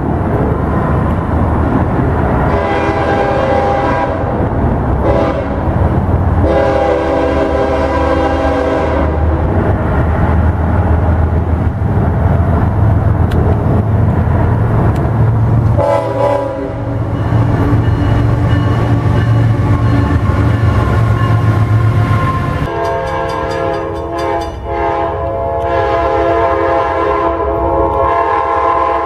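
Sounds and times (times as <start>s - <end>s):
locomotive engine drone: 0.0s - 29.0s
locomotive air horn chord: 2.5s - 4.3s, 5.0s - 5.7s, 6.4s - 9.2s, 15.8s - 17.2s, 19.0s - 29.0s.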